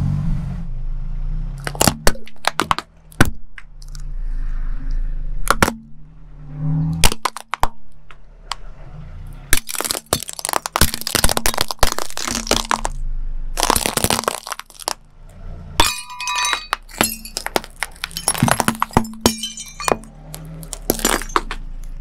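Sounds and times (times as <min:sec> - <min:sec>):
plastic toys snapping: 0:01.6 - 0:04.0, 0:09.6 - 0:13.0, 0:13.6 - 0:15.0
shells cracking under tyre: 0:01.6 - 0:04.0, 0:05.4 - 0:05.9, 0:07.0 - 0:08.6, 0:09.5 - 0:13.0, 0:13.6 - 0:15.0, 0:15.8 - 0:22.0
low engine hum: 0:02.8 - 0:09.6, 0:14.8 - 0:22.0.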